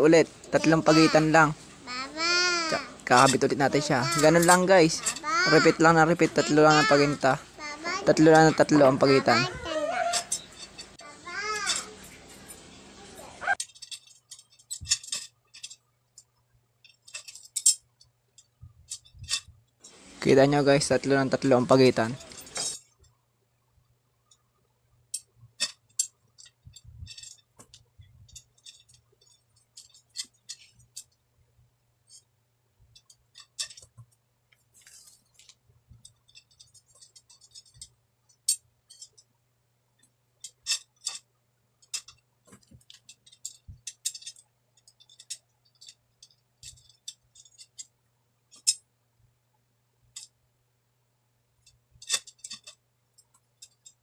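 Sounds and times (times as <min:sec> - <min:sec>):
metal spokes clicking: 0:00.0 - 0:07.4, 0:08.0 - 0:12.6, 0:13.5 - 0:20.0, 0:25.1 - 0:31.2, 0:32.9 - 0:34.2, 0:35.3 - 0:39.3, 0:40.0 - 0:47.9, 0:51.6 - 0:54.0.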